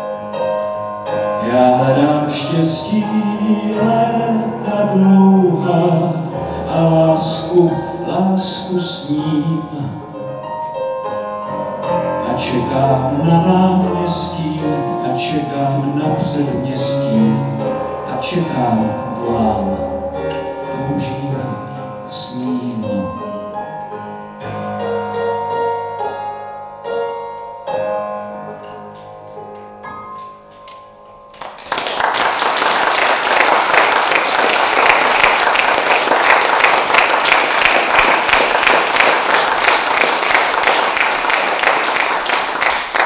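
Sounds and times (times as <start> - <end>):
piano playing: 0.0 - 43.0
audience applause: 31.3 - 43.0.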